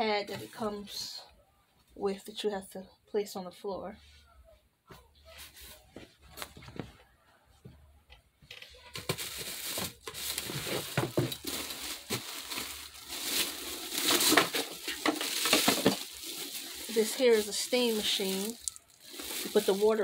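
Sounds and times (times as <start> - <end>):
plastic bag crinkling: 8.8 - 20.0.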